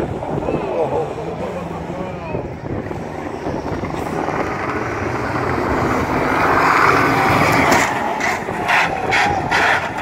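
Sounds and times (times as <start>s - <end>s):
racing car engine passing: 3.1s - 10.0s.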